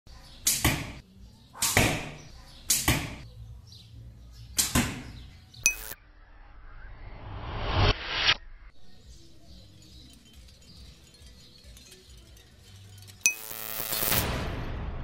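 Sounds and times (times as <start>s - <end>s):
click with high ringing tone: 5.7s - 6.0s, 13.2s - 14.2s.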